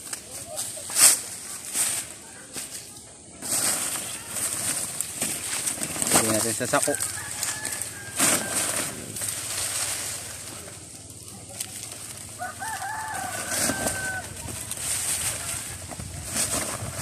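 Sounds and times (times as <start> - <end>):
plastic sack rustling: 0.0 - 17.0
soil rustling: 0.0 - 17.0
rooster crowing: 6.8 - 9.0, 12.3 - 14.5.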